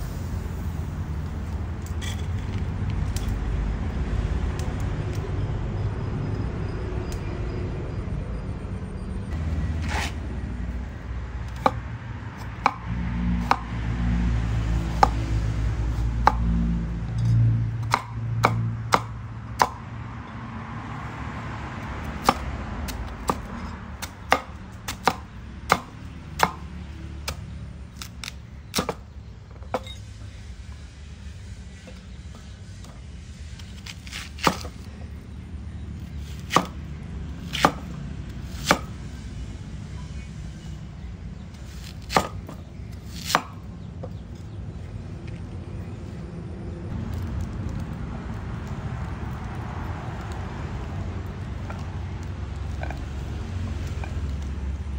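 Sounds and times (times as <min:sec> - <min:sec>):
knife chopping on wooden board: 0:17.8 - 0:19.8, 0:22.2 - 0:26.7, 0:33.8 - 0:34.8, 0:36.3 - 0:36.8, 0:37.5 - 0:37.9, 0:38.5 - 0:38.9, 0:41.8 - 0:43.6.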